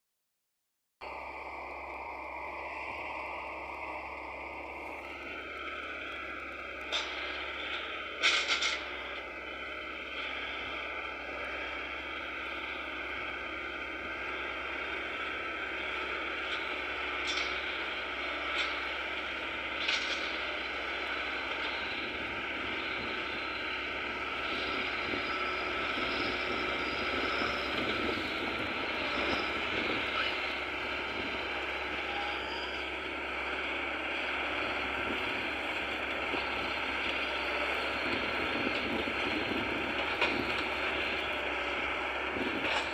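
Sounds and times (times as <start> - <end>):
diesel engine running: 1.0 - 42.9.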